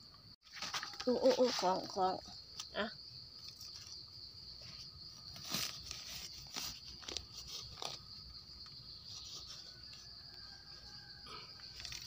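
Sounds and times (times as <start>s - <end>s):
forest insects droning: 0.0s - 12.0s
knife crunching leaf litter: 5.4s - 8.4s.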